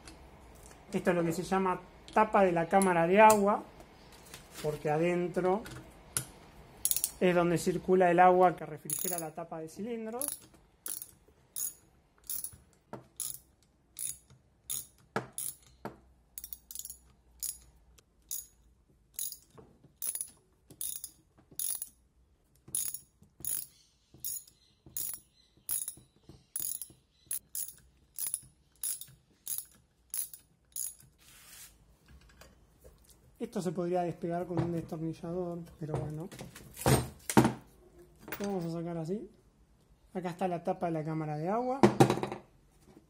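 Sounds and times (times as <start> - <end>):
socket ratchet clicking: 6.8 - 7.2, 8.9 - 9.3, 10.2 - 12.6, 13.2 - 15.8, 16.4 - 22.0, 22.6 - 26.0, 26.6 - 31.1.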